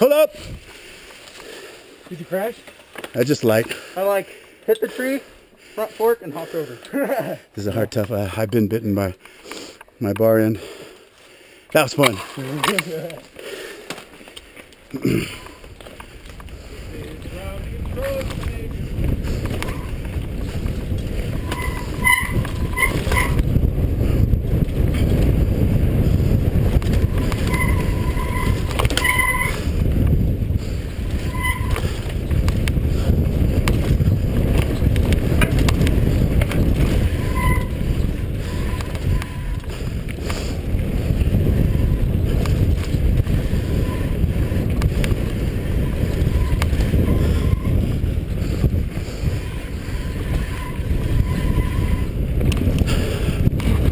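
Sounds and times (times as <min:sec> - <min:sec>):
bike rattling over rocks: 0:12.0 - 0:53.9
wind rumbling on microphone: 0:14.9 - 0:53.9
short squeaks: 0:21.3 - 0:23.5, 0:27.0 - 0:29.7, 0:31.1 - 0:32.1, 0:36.9 - 0:39.7, 0:43.6 - 0:44.2, 0:45.7 - 0:47.8, 0:49.3 - 0:52.2.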